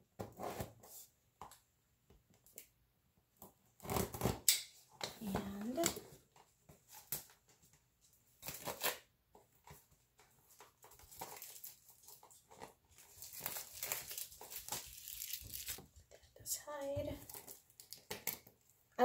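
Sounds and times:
plastic wrapping crinkling: 0:08.4 - 0:09.0, 0:10.4 - 0:16.0, 0:17.2 - 0:18.7.

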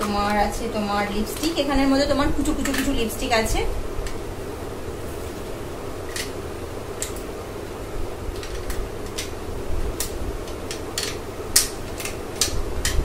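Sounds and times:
steady low hum: 0:00.0 - 0:13.0
plastic cosmetics clicking: 0:02.4 - 0:03.0, 0:08.3 - 0:09.4, 0:10.0 - 0:13.0.

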